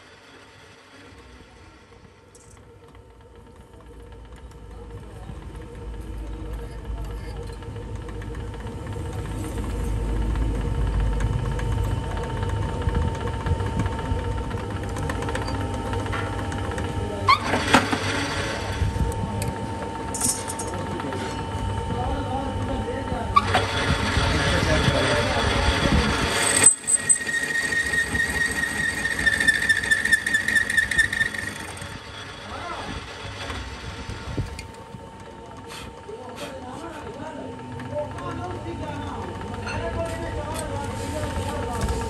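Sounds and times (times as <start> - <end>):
workshop machinery humming: 0.0 - 42.0
lathe tool high-pitched squeal: 23.4 - 33.8.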